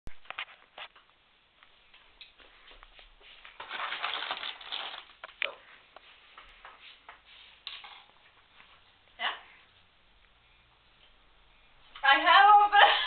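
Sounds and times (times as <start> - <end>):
snack wrapper crinkling: 3.6 - 5.4.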